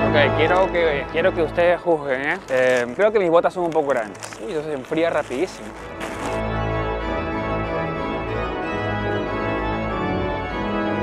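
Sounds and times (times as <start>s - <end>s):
organ-like keyboard chords: 0.0s - 2.1s, 5.2s - 11.0s.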